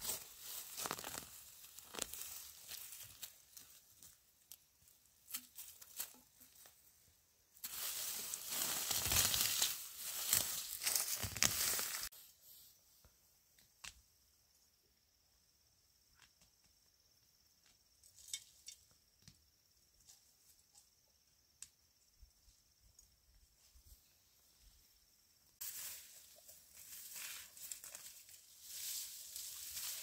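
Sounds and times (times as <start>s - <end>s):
vegetation rustling and tearing: 0.0s - 3.7s, 7.6s - 12.1s.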